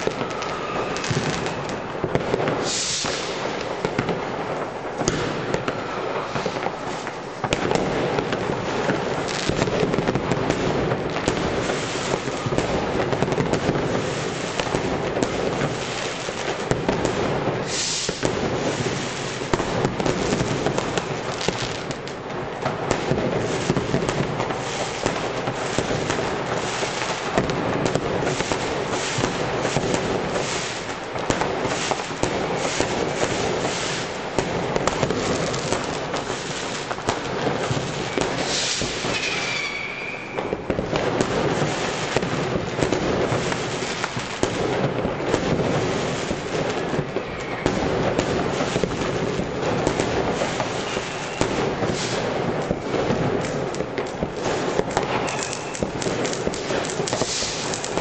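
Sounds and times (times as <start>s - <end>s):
fireworks bangs and crackles: 0.0s - 58.0s.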